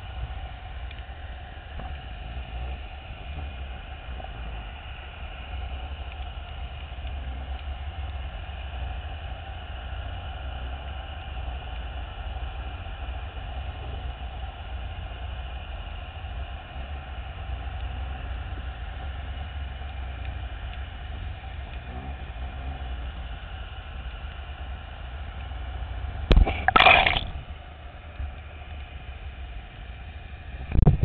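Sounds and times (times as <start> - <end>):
faint hum: 0.0 - 31.0
underwater machinery rumble: 1.5 - 5.0, 26.3 - 28.3, 30.6 - 31.0.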